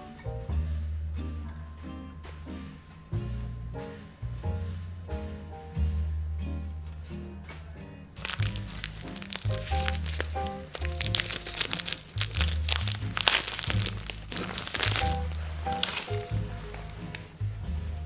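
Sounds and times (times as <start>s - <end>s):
background music with bass: 0.0s - 18.0s
plastic wrap crinkling: 8.2s - 17.3s.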